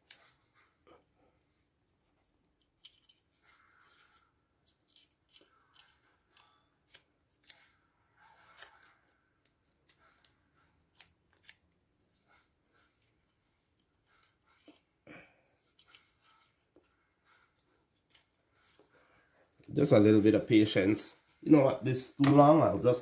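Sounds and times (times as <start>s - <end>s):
tape rustling: 1.8s - 15.0s, 15.6s - 20.1s
scissors snipping tape: 4.6s - 7.8s, 8.5s - 11.7s.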